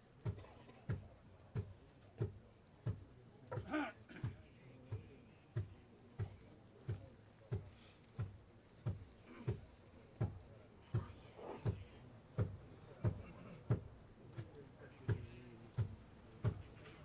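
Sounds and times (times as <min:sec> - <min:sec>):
regular low thuds with clicks: 0:00.0 - 0:17.0.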